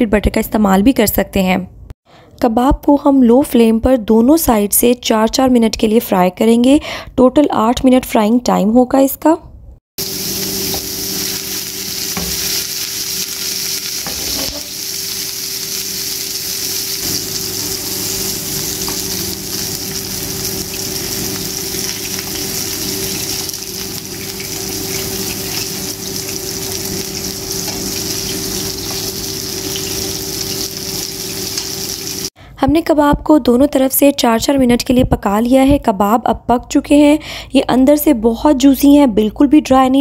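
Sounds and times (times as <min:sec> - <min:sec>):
meat sizzling in a frying pan: 0:10.0 - 0:32.3.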